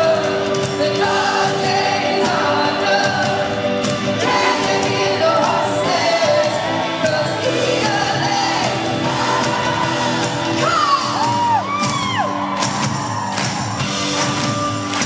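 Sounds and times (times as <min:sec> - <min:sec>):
woman singing lead: 0:00.0 - 0:12.5
live pop rock band: 0:00.0 - 0:15.0
high swooping vocal whoops: 0:09.8 - 0:13.9.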